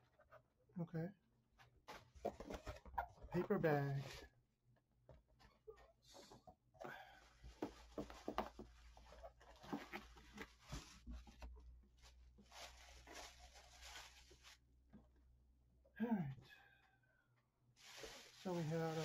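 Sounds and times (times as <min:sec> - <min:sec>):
paper and plastic bag crinkling: 0:12.1 - 0:14.6, 0:17.8 - 0:19.0.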